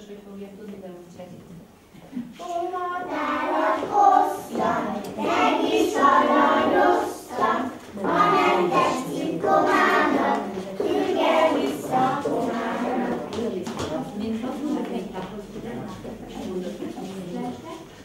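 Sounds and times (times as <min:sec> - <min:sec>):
children singing: 0:02.4 - 0:13.5
women singing: 0:03.0 - 0:14.1.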